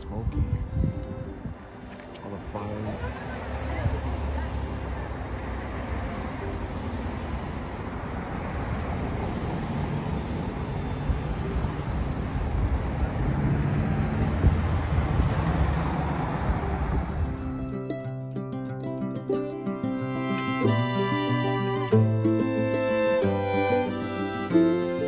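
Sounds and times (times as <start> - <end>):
car tyres and engine rumble: 0.0 - 17.6.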